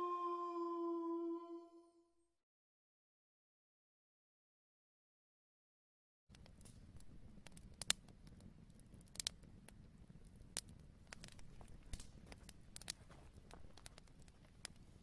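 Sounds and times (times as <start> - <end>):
soft clicks and crackles: 6.3 - 15.0.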